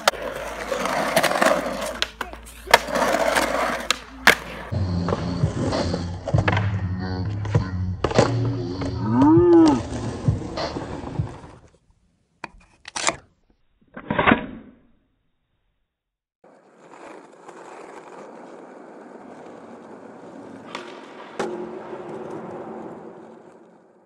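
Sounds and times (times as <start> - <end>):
skateboard knocks and scrapes: 0.0 - 4.7, 16.5 - 24.0.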